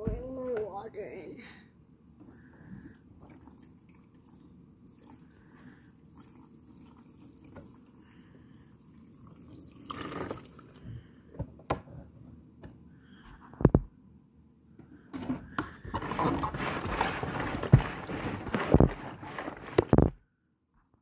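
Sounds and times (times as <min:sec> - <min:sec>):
water sloshing in a drum: 0:02.5 - 0:11.1, 0:15.9 - 0:20.1
washing machine running: 0:15.2 - 0:20.1.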